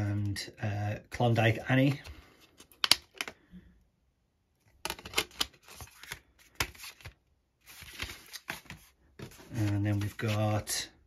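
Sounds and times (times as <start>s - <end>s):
packaging rustling: 4.9s - 10.7s.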